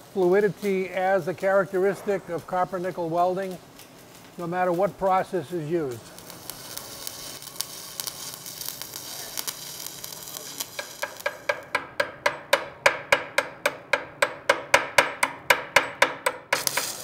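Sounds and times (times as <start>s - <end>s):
welding arc crackling and sizzling: 0.0s - 17.0s
chipping hammer striking metal: 10.8s - 17.0s.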